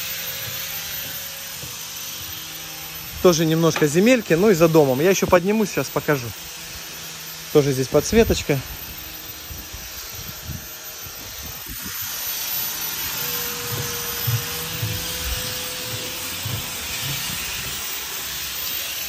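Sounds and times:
footsteps on wooden deck: 0.0 - 4.1, 9.6 - 19.0.

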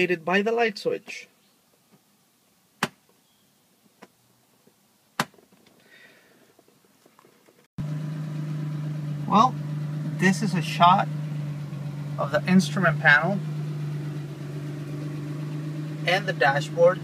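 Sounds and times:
car engine idling: 7.8 - 17.0.

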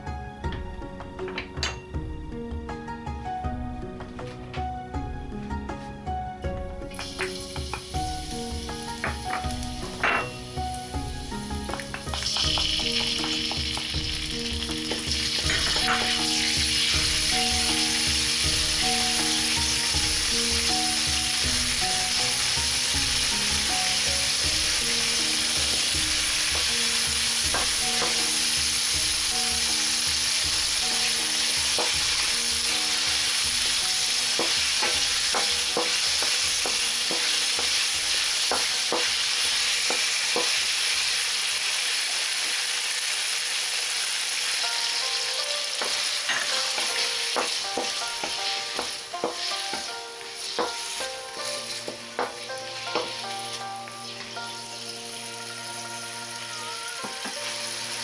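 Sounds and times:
quiet background music: 0.0 - 58.0
sauce sizzling in hot oil: 6.9 - 58.0
wooden spoon stirring in wok: 45.8 - 53.7.

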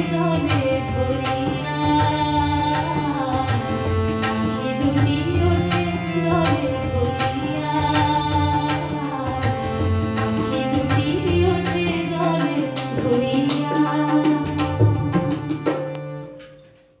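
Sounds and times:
woman singing: 0.0 - 15.5
harmonium chords: 0.0 - 17.0.

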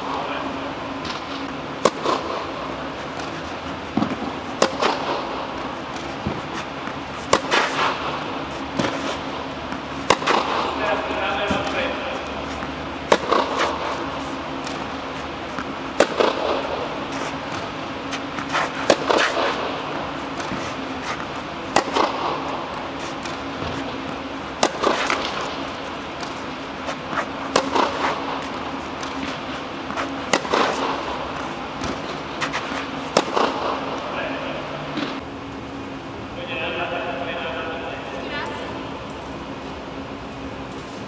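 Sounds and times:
racket striking tennis ball: 0.9 - 34.1
tennis ball bouncing: 0.9 - 34.1.

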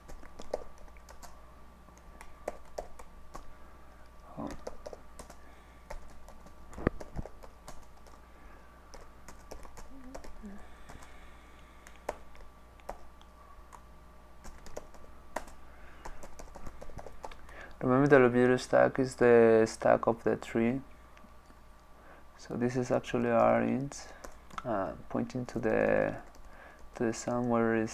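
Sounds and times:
keyboard typing: 0.0 - 1.4, 2.0 - 3.6, 4.4 - 8.2, 8.9 - 11.2, 11.8 - 13.1, 14.4 - 17.7, 23.0 - 27.6.

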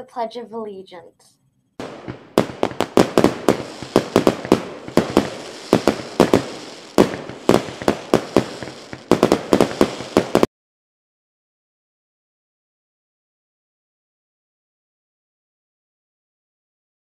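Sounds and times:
fireworks bangs: 1.8 - 10.5
fireworks crackle: 1.8 - 10.5.

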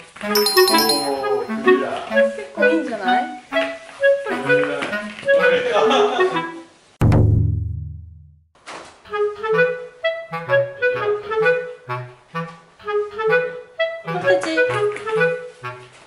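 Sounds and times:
bouncy woodwind tune with bass: 1.3 - 6.7, 9.1 - 16.0.

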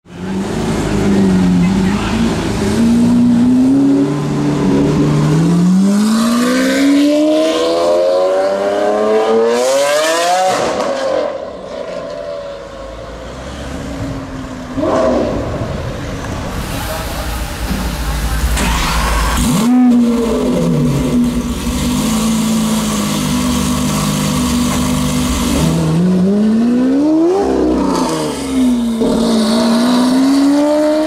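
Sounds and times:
car engine accelerating: 17.2 - 31.0
engine revving: 18.6 - 31.0.

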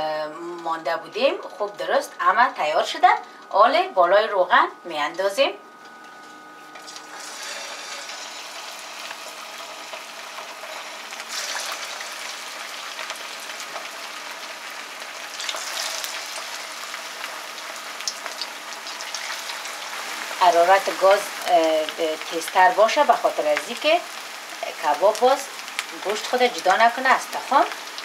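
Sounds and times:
hot oil sizzling: 6.8 - 28.0.

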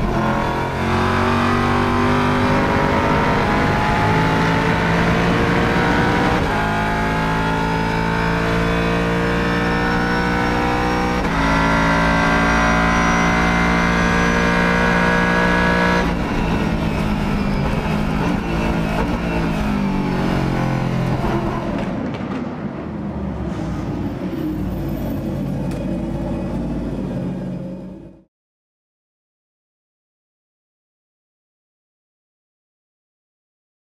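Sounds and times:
race car engine accelerating: 0.0 - 22.1.

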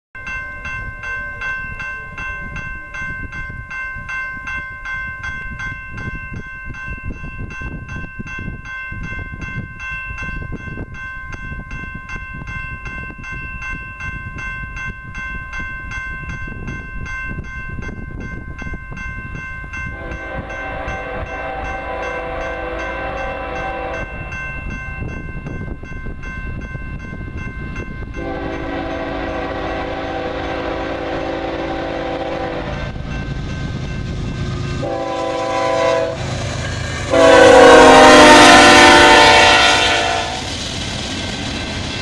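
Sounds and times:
high bell-like ringing: 0.2 - 29.4
freight train rumble: 0.2 - 42.0
locomotive horn: 20.0 - 24.2, 28.2 - 33.0, 34.8 - 40.5.

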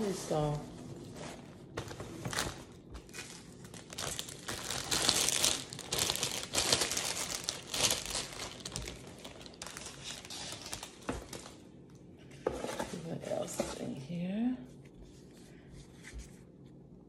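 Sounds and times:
plastic packaging crinkling: 1.7 - 11.6.

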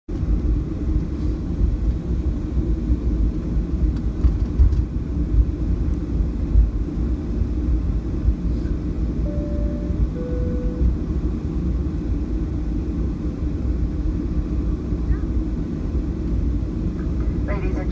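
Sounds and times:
aircraft cabin rumble: 0.1 - 17.9
two-tone cabin chime: 9.2 - 11.1.

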